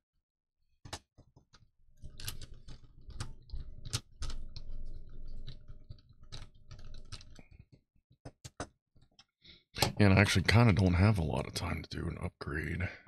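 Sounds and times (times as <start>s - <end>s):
plastic toy parts clicking and rubbing: 0.9s - 10.0s.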